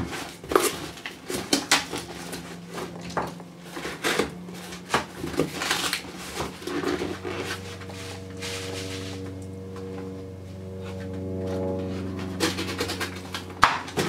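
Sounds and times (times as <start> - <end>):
foam packing peanuts rustling: 0.0 - 9.4, 12.2 - 14.0
steady humming tone: 0.0 - 14.0.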